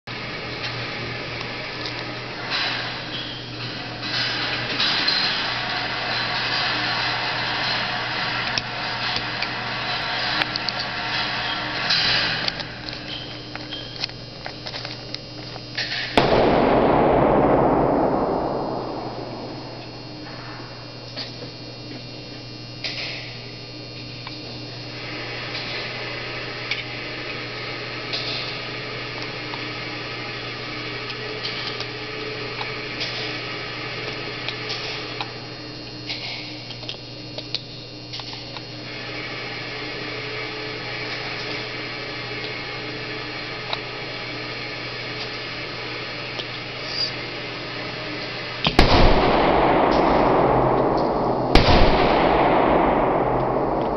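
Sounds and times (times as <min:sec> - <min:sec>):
low electrical hum: 0:00.1 - 0:53.9
gunshot: 0:16.0 - 0:21.3, 0:48.7 - 0:53.9.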